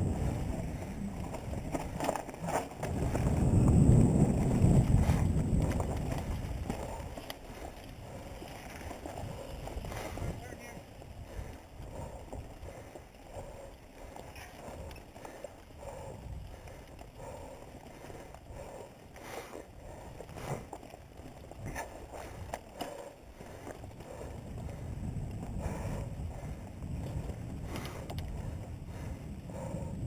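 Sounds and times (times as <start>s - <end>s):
bike rattling and knocking: 0.0s - 29.9s
wind on microphone: 0.0s - 30.0s.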